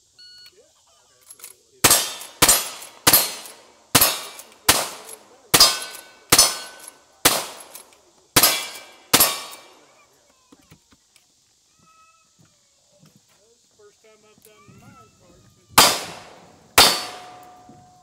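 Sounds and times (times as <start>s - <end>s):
rifle shots echoing: 1.8s - 9.8s, 15.8s - 17.7s.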